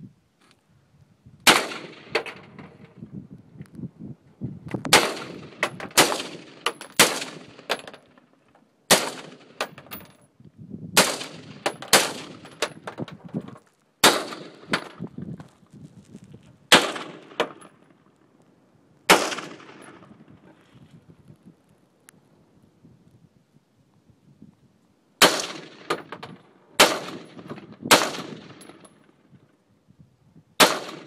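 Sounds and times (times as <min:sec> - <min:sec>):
rifle shots with echo: 0:01.5 - 0:02.7, 0:04.9 - 0:08.2, 0:08.9 - 0:09.8, 0:11.0 - 0:12.7, 0:14.0 - 0:15.0, 0:16.7 - 0:18.0, 0:19.1 - 0:20.4, 0:25.2 - 0:29.1, 0:30.6 - 0:31.0.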